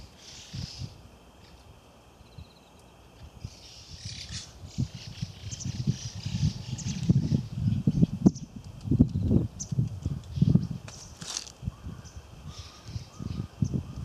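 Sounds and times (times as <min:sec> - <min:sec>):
birds chirping faintly: 0:00.0 - 0:14.0
footsteps on grass: 0:10.8 - 0:11.6.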